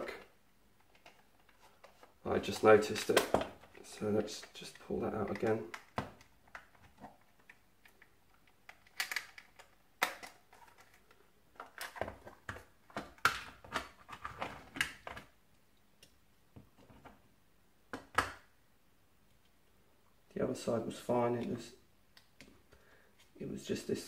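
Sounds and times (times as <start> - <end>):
plastic parts clicking and rattling: 0.0 - 2.2, 2.8 - 15.3.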